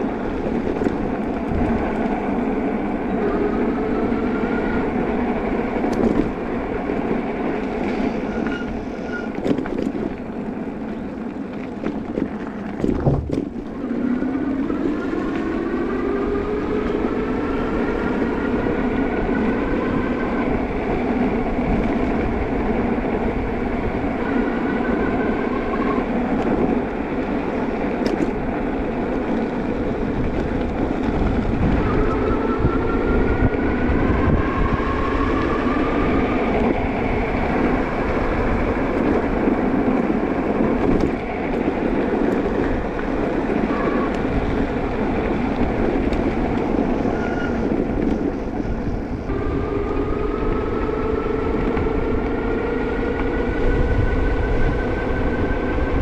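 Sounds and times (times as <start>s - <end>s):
wind and tyre noise: 0.0s - 56.0s
electric bike motor whining: 13.5s - 56.0s.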